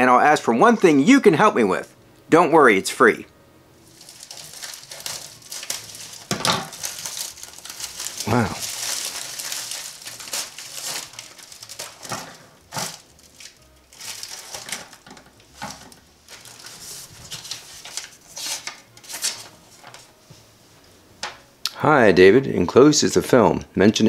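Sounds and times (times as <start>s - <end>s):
plastic bags crinkling: 3.9s - 20.1s
paper rustling: 3.9s - 20.2s.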